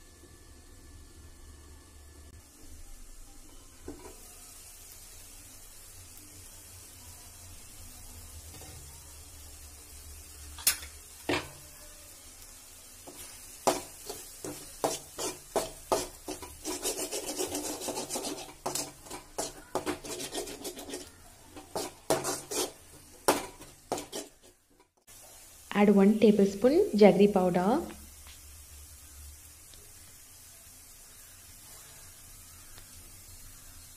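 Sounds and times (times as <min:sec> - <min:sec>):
spatula knocking on pan: 0:13.1 - 0:24.4
metal spatula scraping pan: 0:13.1 - 0:24.6.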